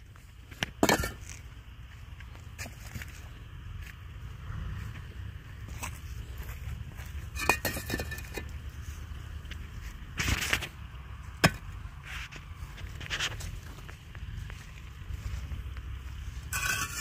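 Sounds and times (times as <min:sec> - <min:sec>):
wind rumbling on microphone: 0:03.4 - 0:07.4.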